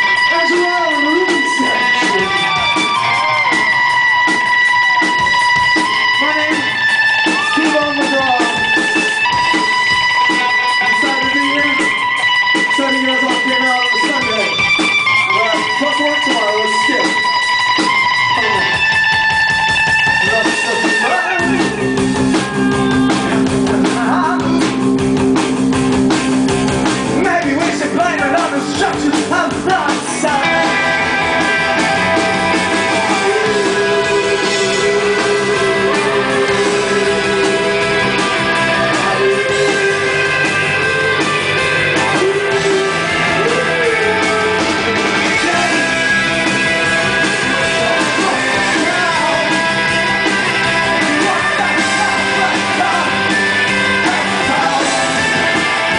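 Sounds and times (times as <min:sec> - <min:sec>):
bass guitar: 0:00.0 - 0:55.9
drums: 0:00.0 - 0:55.9
electric guitar: 0:00.0 - 0:55.9
man singing: 0:22.4 - 0:24.8, 0:27.1 - 0:30.9, 0:33.0 - 0:40.2, 0:41.9 - 0:55.5.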